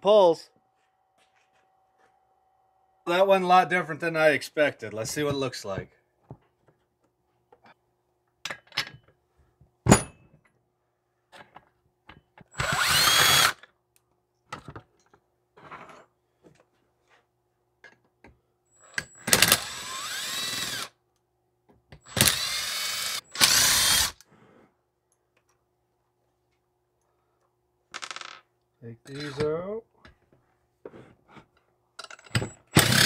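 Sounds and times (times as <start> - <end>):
power driver spinning: 12.6 - 13.6, 19.1 - 20.9, 22.1 - 24.2, 32.2 - 33.0
clicks and knocks of parts: 32.0 - 32.6.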